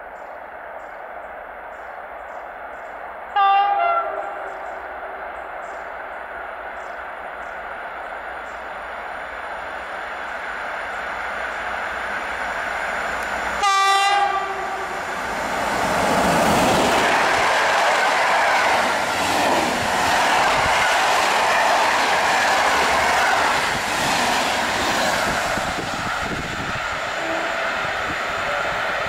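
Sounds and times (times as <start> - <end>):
train passing with rushing noise: 0.0 - 29.0
locomotive horn blast: 3.4 - 4.7, 13.6 - 15.0, 27.2 - 27.8.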